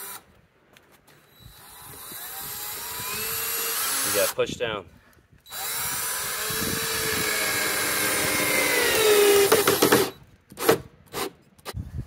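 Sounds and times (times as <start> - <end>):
cordless drill motor whining: 1.2 - 4.4, 5.4 - 10.3.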